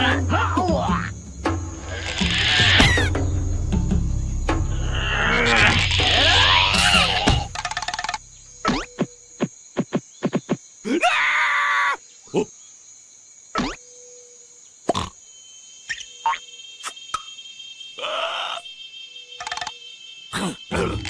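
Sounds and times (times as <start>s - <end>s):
cartoon vocal noises: 5.0s - 7.5s.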